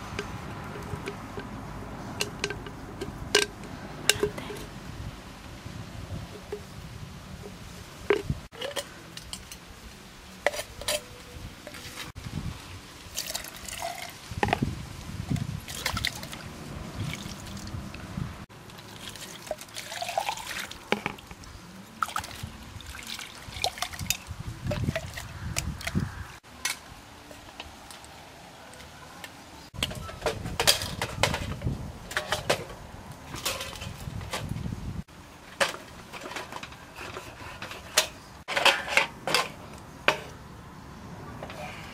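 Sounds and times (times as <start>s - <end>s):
liquid pouring and splashing: 13.0s - 14.6s, 15.3s - 17.9s, 18.5s - 26.0s.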